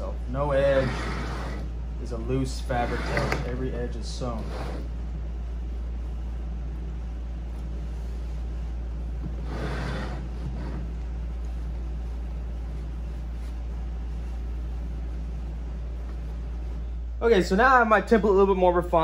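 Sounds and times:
low hum: 0:00.0 - 0:19.0
canvas fabric rustling: 0:07.1 - 0:17.0.

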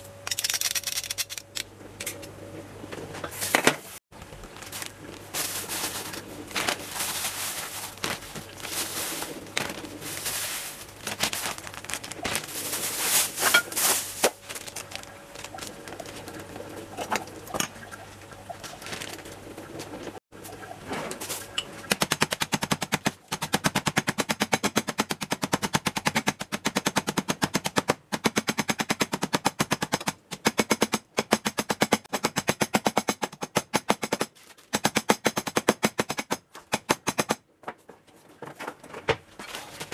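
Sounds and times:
plastic bag rustling: 0:03.3 - 0:17.0, 0:18.6 - 0:20.2.

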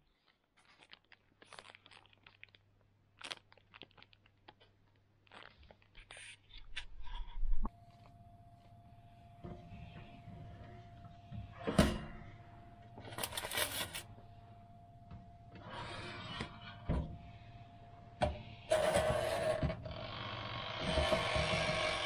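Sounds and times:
aluminium foil rustling: 0:13.1 - 0:14.1.

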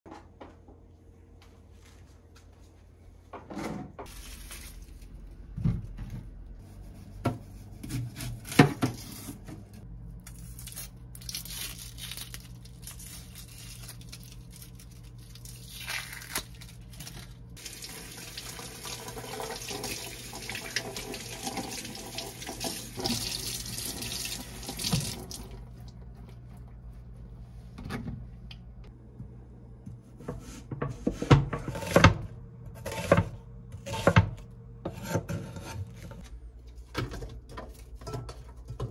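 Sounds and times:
faucet running into sink: 0:17.6 - 0:25.6.

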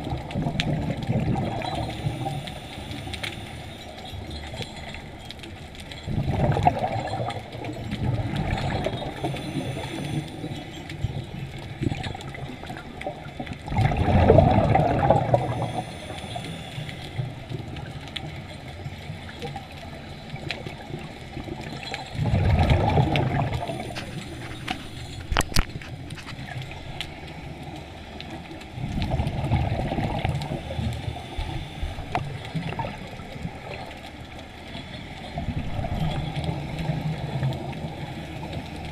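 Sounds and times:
air bubbles underwater: 0:00.0 - 0:02.6, 0:06.0 - 0:10.2, 0:11.0 - 0:16.3, 0:20.4 - 0:26.8, 0:28.8 - 0:34.1, 0:35.3 - 0:38.9
steady watery hiss: 0:00.0 - 0:38.9.

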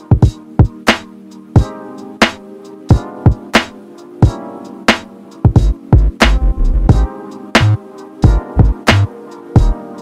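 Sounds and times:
kick drum hits: 0:05.5 - 0:07.1
snare strikes: 0:06.2 - 0:06.6.

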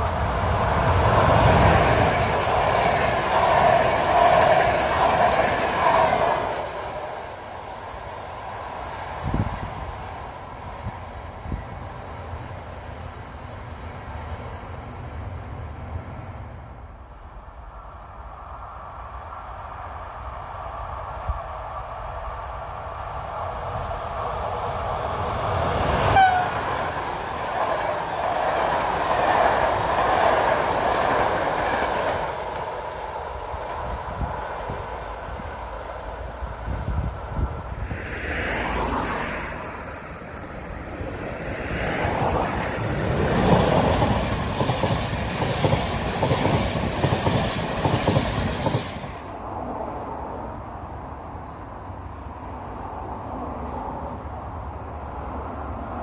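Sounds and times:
express train passing at speed: 0:00.0 - 0:56.0
wheel and rail noise: 0:00.0 - 0:56.0
train horn: 0:26.0 - 0:26.9.

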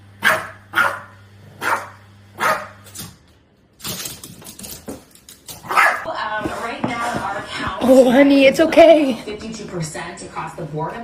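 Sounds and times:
dog barking: 0:00.2 - 0:02.9, 0:05.6 - 0:06.1.

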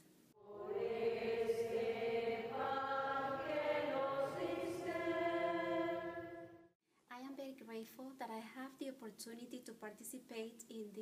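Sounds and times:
voices singing slow chant: 0:00.4 - 0:06.7.

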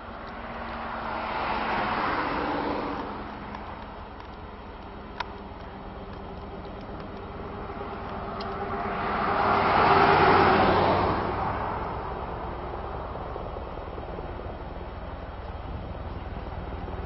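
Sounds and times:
helicopter rotor hum: 0:02.2 - 0:09.4, 0:11.4 - 0:17.0
faint steady whine: 0:11.8 - 0:17.0.

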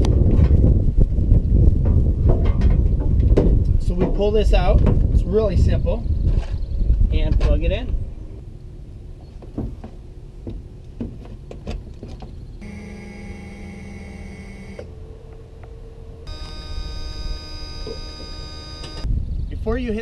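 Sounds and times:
electric motor hum and whine: 0:12.6 - 0:19.1.

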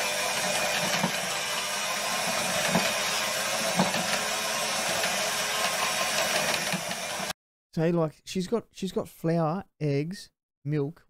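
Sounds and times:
electric mixer whisking batter: 0:00.0 - 0:07.4.

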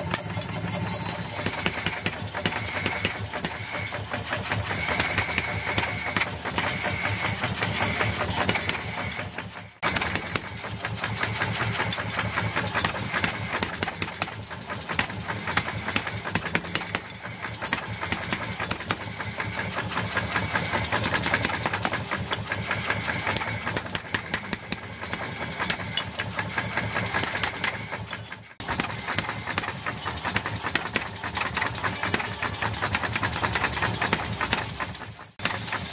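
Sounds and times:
motor running: 0:00.0 - 0:35.9
power hammer pounding steel: 0:00.0 - 0:35.9.

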